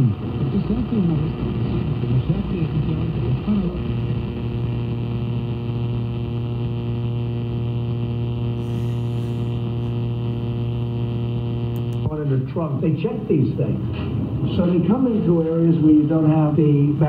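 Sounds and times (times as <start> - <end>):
electrical buzz: 0.0 - 12.2
radio hiss: 0.4 - 12.2.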